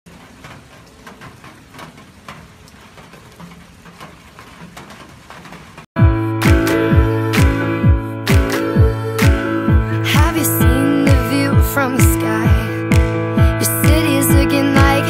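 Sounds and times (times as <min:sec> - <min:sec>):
raindrops tapping surfaces: 0:00.1 - 0:05.9
steady rain falling: 0:00.1 - 0:05.9
music with deep kick drum: 0:06.0 - 0:15.0.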